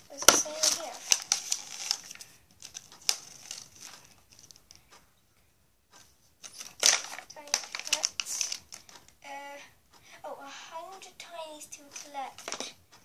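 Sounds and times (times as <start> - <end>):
paper leaflet rustling: 0.0 - 4.8, 6.4 - 9.1, 11.9 - 12.7.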